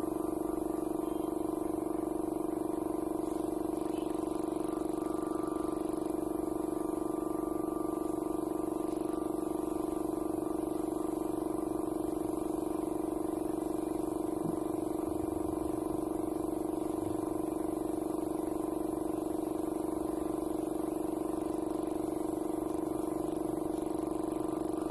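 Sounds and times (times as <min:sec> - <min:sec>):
air compressor droning: 0:00.0 - 0:24.9.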